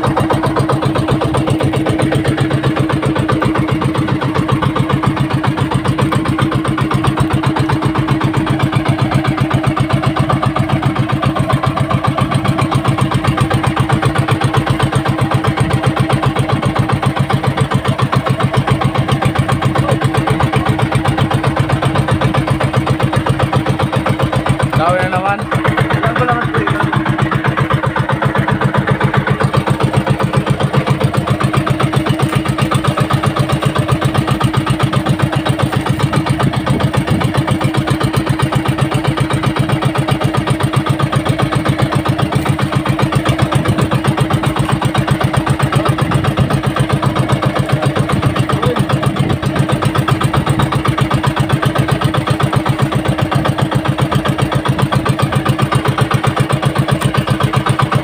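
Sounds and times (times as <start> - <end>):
boat engine idling: 0.0 - 58.0.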